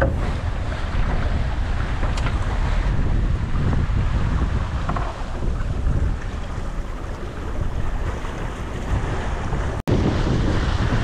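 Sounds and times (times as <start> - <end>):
water rushing along boat hull: 0.0 - 11.0
wind buffeting microphone: 0.0 - 11.0.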